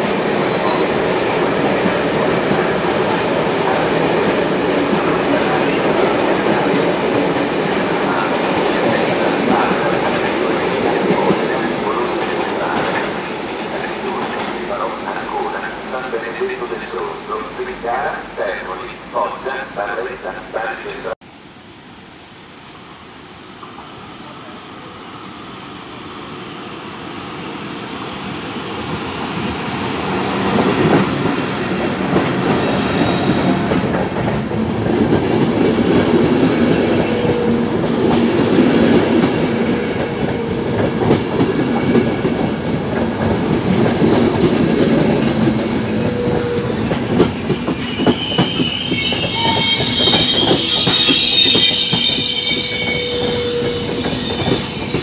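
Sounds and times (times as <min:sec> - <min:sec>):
passenger train passing: 0:00.0 - 0:55.0
high wheel squeal: 0:47.7 - 0:55.0.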